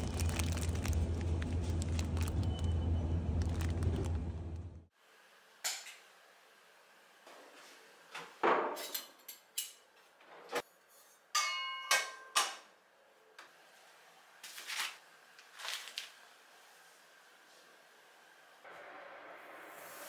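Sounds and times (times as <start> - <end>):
pan metallic ring: 11.4 - 12.3.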